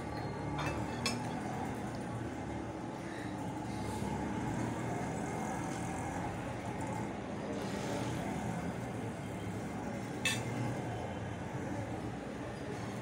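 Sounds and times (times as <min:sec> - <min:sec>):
metal spoon clinking on plate: 0:00.6 - 0:01.3, 0:10.2 - 0:10.5.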